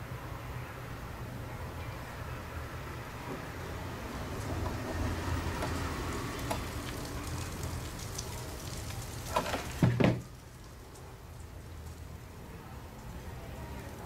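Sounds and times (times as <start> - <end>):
short loud knocks: 9.8 - 10.2.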